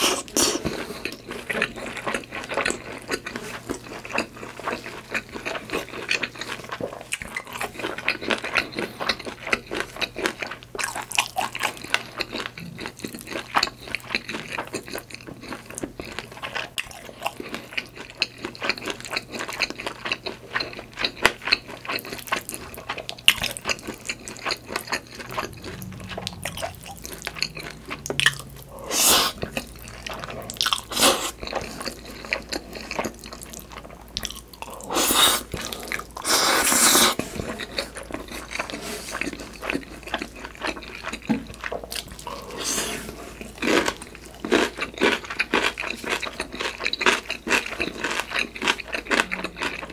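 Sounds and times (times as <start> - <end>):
chewing with wet mouth clicks: 0.1 - 42.6, 43.5 - 49.9
noisy bursts: 25.1 - 30.2.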